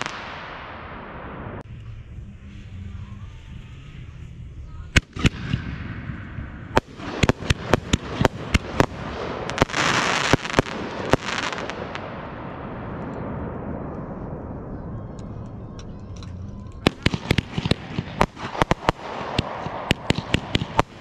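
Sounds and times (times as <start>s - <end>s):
fireworks bangs: 0.0s - 1.6s, 4.9s - 15.4s, 16.7s - 21.0s
fireworks rumble: 0.0s - 21.0s.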